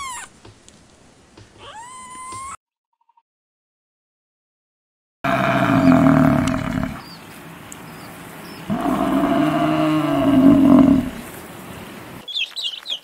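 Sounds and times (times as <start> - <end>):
buffalo bellowing: 5.3 - 7.0, 8.7 - 11.2.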